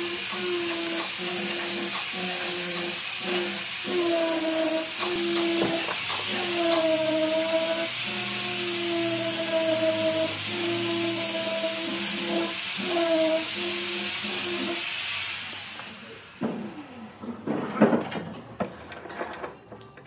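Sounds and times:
power tool hissing and humming: 0.0 - 17.3
knocks and clatters: 17.3 - 20.0.

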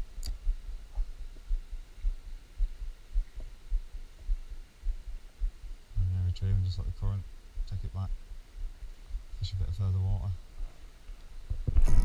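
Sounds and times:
low thumps and rumble: 0.4 - 10.7, 11.4 - 12.0.

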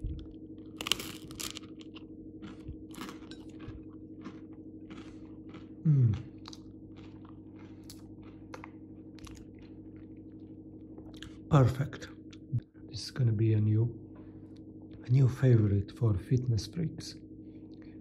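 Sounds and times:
chewing crunches: 0.0 - 11.5
faint steady hum: 0.0 - 18.0
crunchy bite: 0.1 - 10.2
person humming mm: 5.8 - 6.4.

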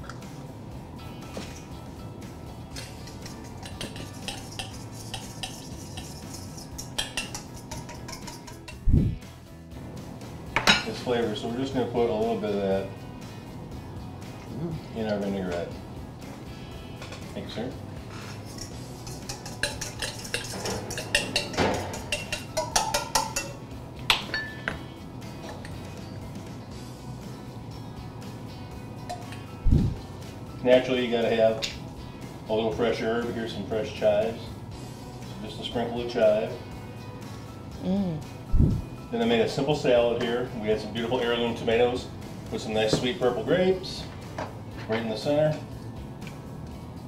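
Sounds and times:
utensil clinking in metal bowl: 2.7 - 8.9, 18.2 - 24.8, 29.0 - 29.5.

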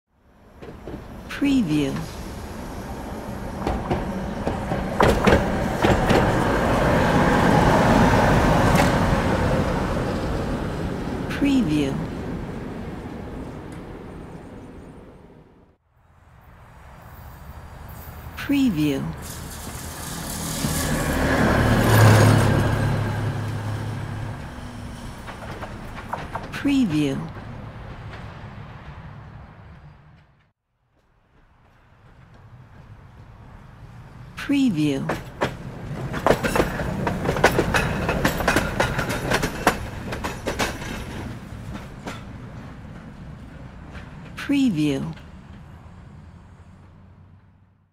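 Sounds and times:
tram rumbling: 0.1 - 47.8
wheels clacking on track: 0.4 - 11.4, 19.2 - 30.5, 31.2 - 44.5.

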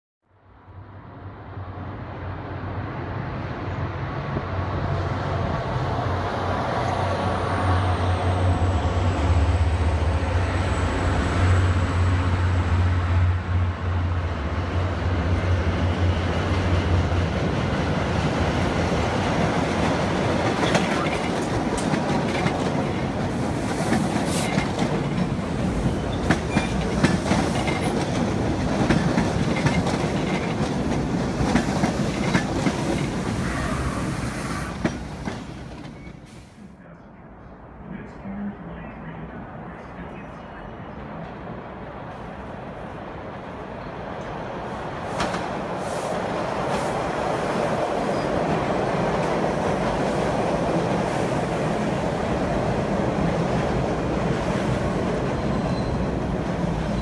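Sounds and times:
diesel locomotive engine drone: 0.4 - 57.0
subway train passing: 0.4 - 57.0
wheel squeal: 55.4 - 56.1.

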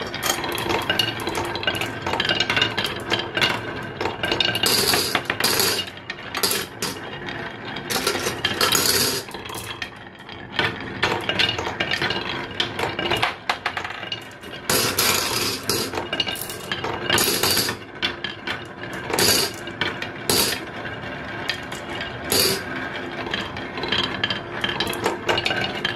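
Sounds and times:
marbles rattling on wooden track: 0.0 - 25.9.

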